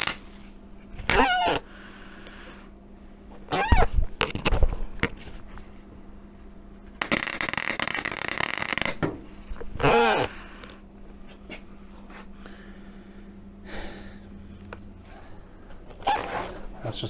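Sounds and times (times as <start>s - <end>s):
welder arc crackling: 0.0s - 0.3s, 7.0s - 10.8s.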